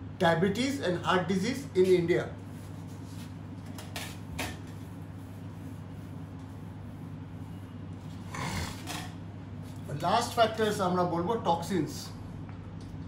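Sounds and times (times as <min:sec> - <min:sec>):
steady low hum: 0:00.0 - 0:13.0
eraser rubbing on whiteboard: 0:04.7 - 0:07.6.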